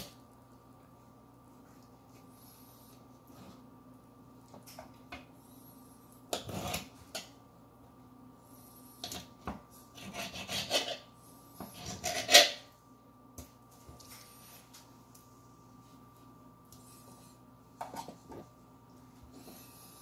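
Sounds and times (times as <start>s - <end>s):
faint steady hum: 0.0s - 20.0s
knife scraping on cutting board: 6.3s - 6.9s, 9.9s - 12.6s.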